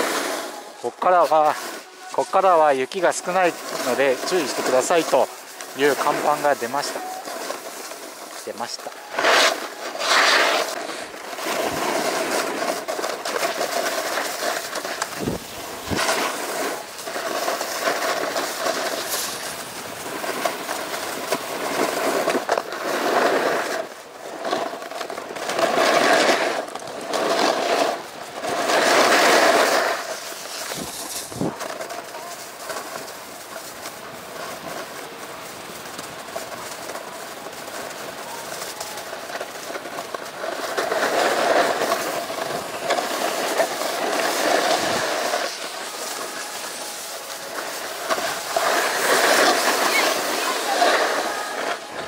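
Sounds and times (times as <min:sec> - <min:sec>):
snowboard scraping on snow: 0:00.0 - 0:52.0.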